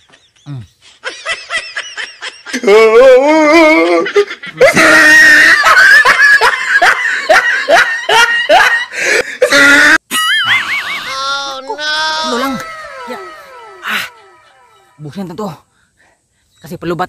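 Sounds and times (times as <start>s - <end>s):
warbling whistle-like tone: 12.2s - 15.4s.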